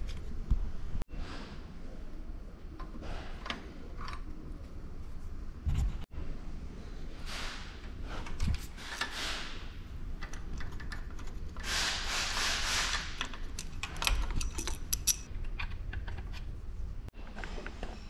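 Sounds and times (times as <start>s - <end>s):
engine parts clicking and knocking: 10.2s - 11.6s, 13.0s - 18.0s.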